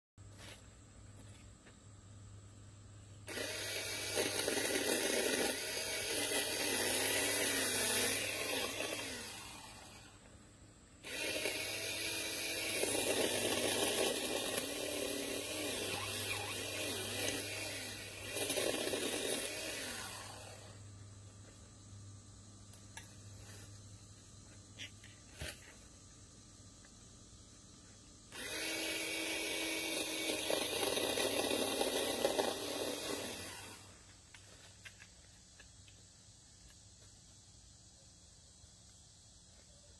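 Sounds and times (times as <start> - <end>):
electric pole saw cutting branches: 3.2 - 10.3, 11.0 - 20.9, 28.3 - 34.4.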